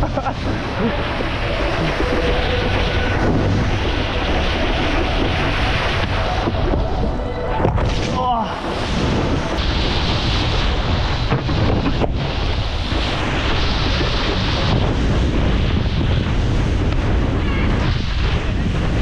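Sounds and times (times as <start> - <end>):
water spray hissing: 0.0 - 7.2
wind buffeting microphone: 0.0 - 19.0.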